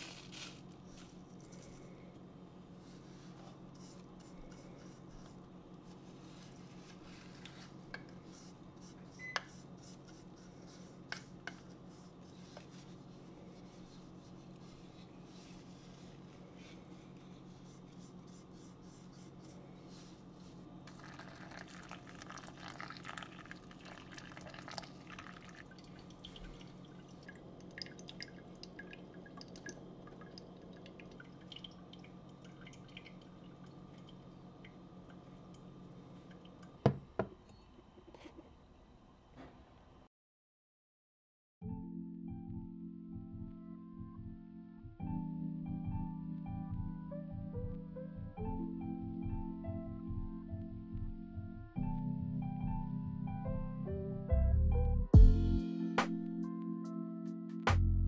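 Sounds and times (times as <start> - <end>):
coffee grounds tipped with taps: 20.9 - 31.8
water pouring over grounds: 20.9 - 34.1
drips and ticks: 21.4 - 36.8.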